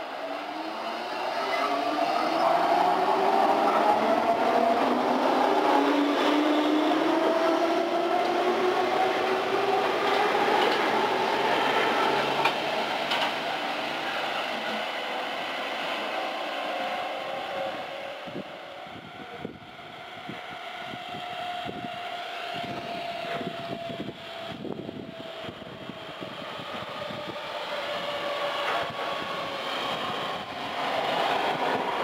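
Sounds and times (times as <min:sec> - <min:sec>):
passenger train passing with whine: 0:00.0 - 0:32.0.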